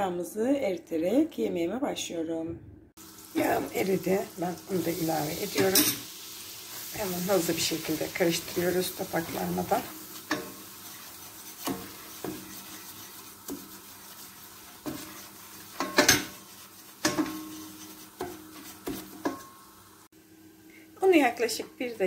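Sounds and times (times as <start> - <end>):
faint sizzle: 3.0 - 22.0
wooden spoon scraping a metal pot: 7.3 - 19.6.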